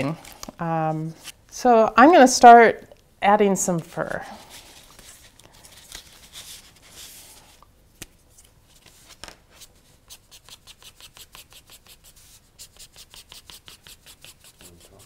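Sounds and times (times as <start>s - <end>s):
marker scratching on paper: 10.1s - 15.0s.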